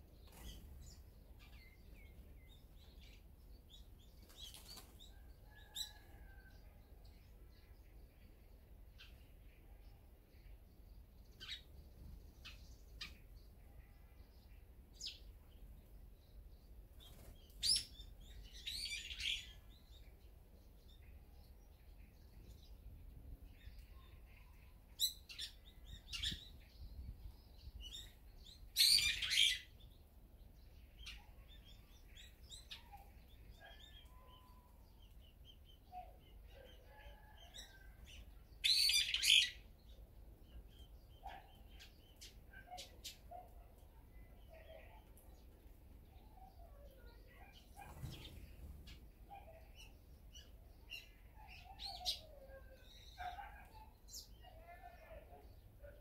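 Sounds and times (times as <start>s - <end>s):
small songbirds chirping: 0.0s - 56.0s
harsh bird calls: 27.8s - 29.8s, 30.9s - 39.7s.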